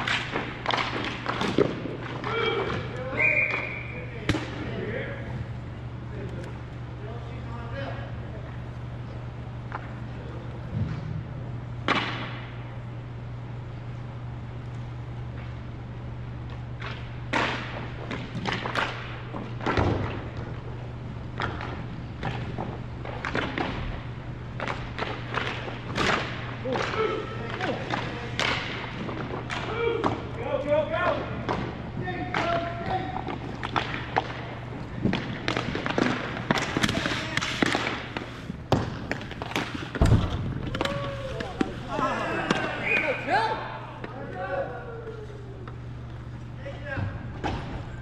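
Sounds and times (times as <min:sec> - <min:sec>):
steady low hum: 0:00.0 - 0:48.0
basketball bouncing on gym floor: 0:38.7 - 0:41.0.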